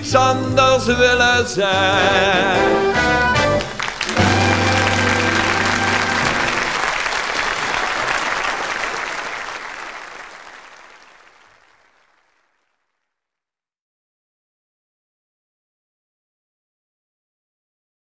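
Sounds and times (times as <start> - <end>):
band final chord: 2.0 - 6.8
audience applauding: 2.9 - 12.7.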